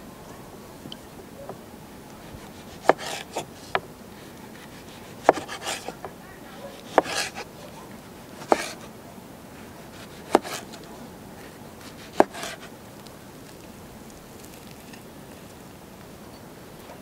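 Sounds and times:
knife knocking on wooden board: 0:05.2 - 0:06.2.

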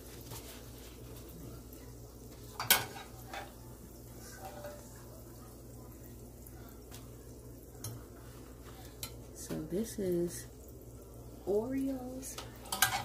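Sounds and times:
food frying in oil: 0:00.0 - 0:13.0
low steady hum: 0:00.0 - 0:13.0
wire skimmer clacking on cookware: 0:02.6 - 0:03.6, 0:12.3 - 0:13.0.

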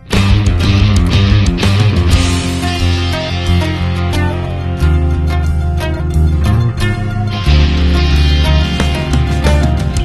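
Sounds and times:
deep bass line: 0:00.0 - 0:10.0
rock band music: 0:00.0 - 0:10.0
drum hits: 0:08.6 - 0:10.0.

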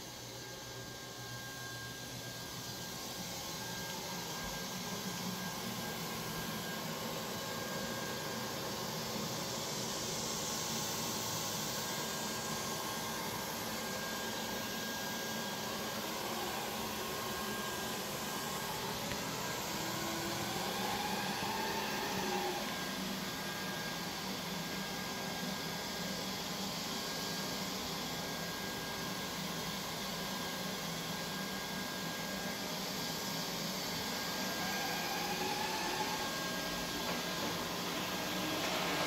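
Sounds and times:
robot vacuum whirring: 0:10.9 - 0:24.8, 0:34.0 - 0:39.0.

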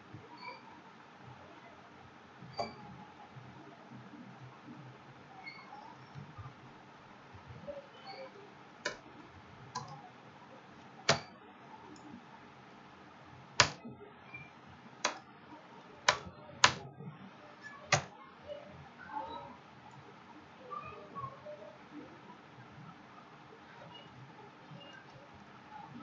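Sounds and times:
faint room noise: 0:00.0 - 0:26.0
keyboard and mouse clicks: 0:08.8 - 0:09.1, 0:09.8 - 0:10.0, 0:11.1 - 0:11.3, 0:13.6 - 0:13.9, 0:15.0 - 0:15.2, 0:16.0 - 0:16.9, 0:17.6 - 0:18.1.

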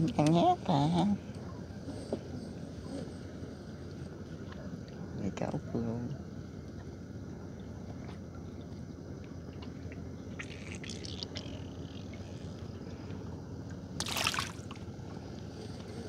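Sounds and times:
water dripping and splashing: 0:10.4 - 0:11.6, 0:14.0 - 0:14.8.

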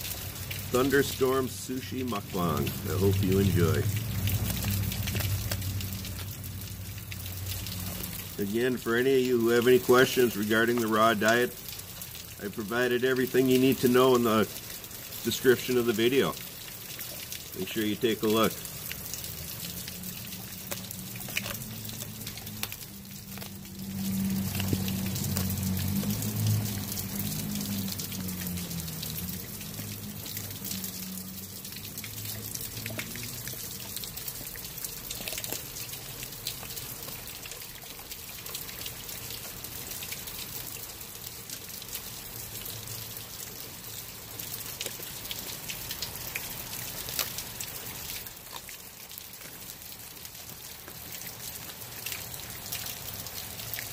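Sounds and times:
rain pattering: 0:00.0 - 0:53.9
dog chewing and crunching fish: 0:02.1 - 0:06.8, 0:18.9 - 0:30.5, 0:32.6 - 0:37.2.

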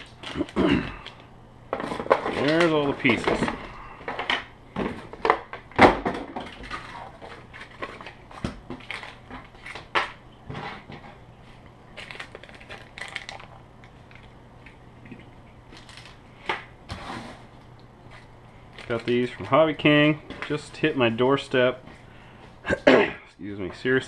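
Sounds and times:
plastic packaging crinkling: 0:00.0 - 0:01.3, 0:01.9 - 0:03.8, 0:06.4 - 0:10.3, 0:11.5 - 0:16.6, 0:17.6 - 0:21.6.

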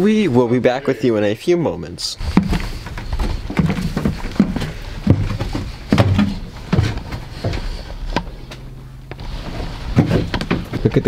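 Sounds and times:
footsteps on wooden stairs: 0:02.2 - 0:11.0.

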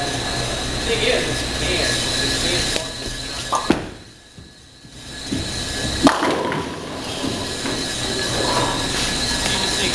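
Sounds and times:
bowling ball rolling: 0:02.6 - 0:09.9
pins crashing and clattering: 0:05.9 - 0:07.9.

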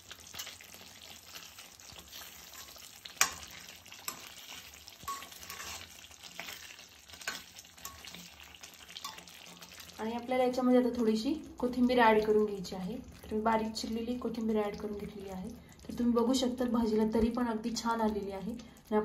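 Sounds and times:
gravy simmering and sizzling: 0:00.0 - 0:19.0
spoon clicking against pan: 0:02.6 - 0:04.4, 0:05.0 - 0:05.8, 0:07.2 - 0:08.3, 0:09.0 - 0:09.7.

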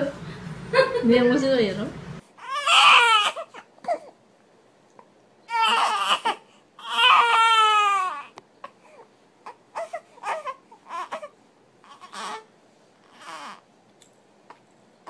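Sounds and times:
baby crying: 0:02.4 - 0:04.2, 0:05.5 - 0:13.7.

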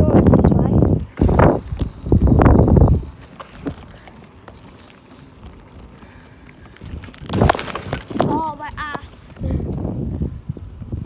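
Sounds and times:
bike tyres rolling on tarmac: 0:00.0 - 0:11.0
bike rattles and knocks: 0:01.1 - 0:09.8.

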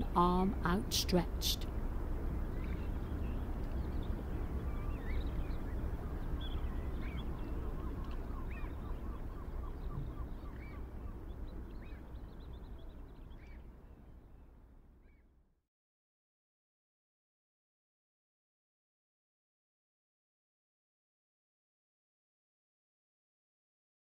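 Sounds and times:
birds calling: 0:01.6 - 0:15.2.

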